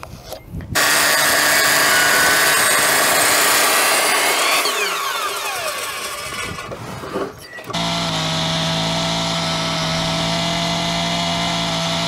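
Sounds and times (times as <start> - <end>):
saw blade spinning down: 0.8 - 6.8
circular saw cutting wood: 0.8 - 12.0.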